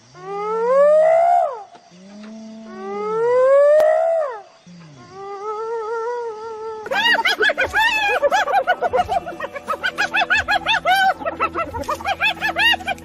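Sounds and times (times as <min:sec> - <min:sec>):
hyena calling and giggling: 0:00.0 - 0:13.0.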